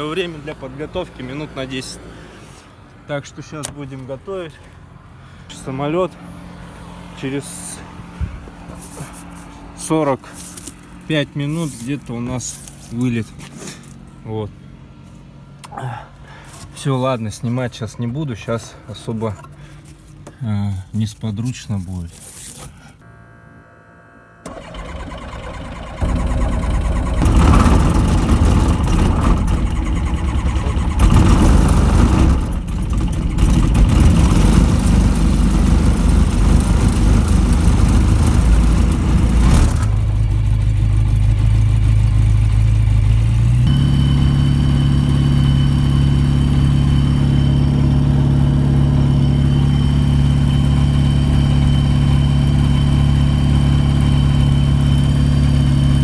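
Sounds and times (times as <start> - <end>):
light aircraft engine running: 4.6 - 16.7, 24.4 - 56.0.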